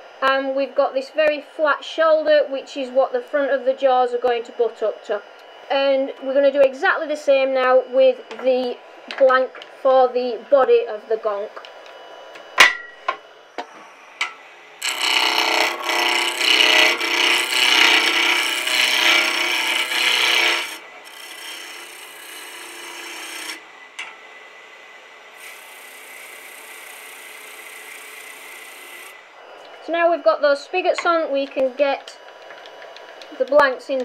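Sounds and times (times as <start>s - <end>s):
lathe tool cutting wood: 13.3s - 33.7s.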